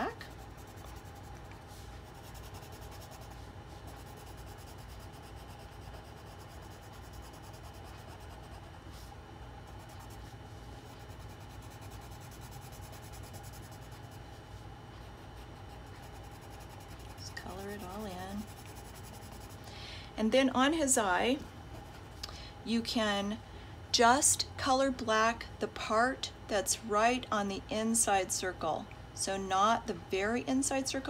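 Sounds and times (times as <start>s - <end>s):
pencil scratching on paper: 0.2s - 8.8s, 9.6s - 14.3s, 15.3s - 19.6s.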